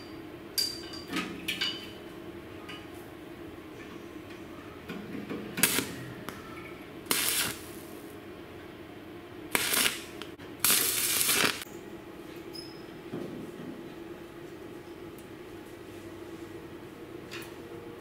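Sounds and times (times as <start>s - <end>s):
arc welder crackling and hissing: 5.5s - 6.4s, 7.0s - 8.3s, 9.5s - 11.7s.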